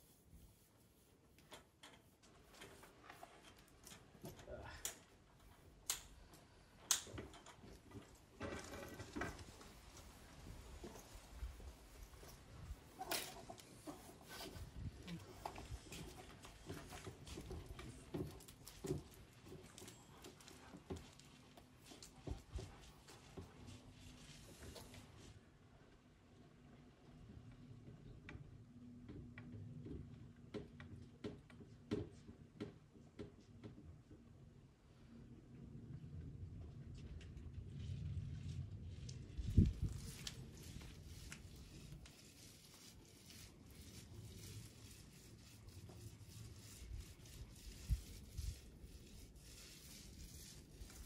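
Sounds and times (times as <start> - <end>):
painting tool rubbing rough wall: 0.0 - 3.5, 8.7 - 24.9, 38.9 - 51.0.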